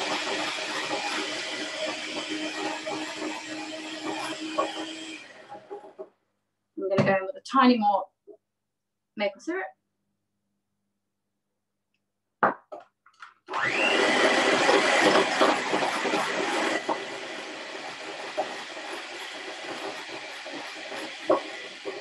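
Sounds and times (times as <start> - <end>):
beaters whisking in glass bowl: 0.0 - 6.0, 14.1 - 22.0
electric hand mixer whirring: 0.0 - 6.0, 13.5 - 22.0
knock: 12.4 - 12.9.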